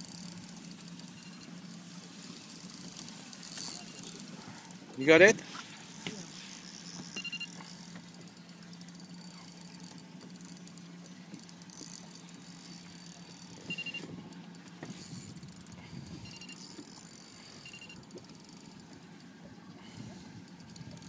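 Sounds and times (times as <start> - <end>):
fishing reels clicking: 0.0 - 19.4, 20.1 - 21.0
boat engine idling: 0.0 - 21.0
short high beeps: 7.1 - 7.6, 13.5 - 14.1, 16.2 - 16.7, 17.6 - 18.0.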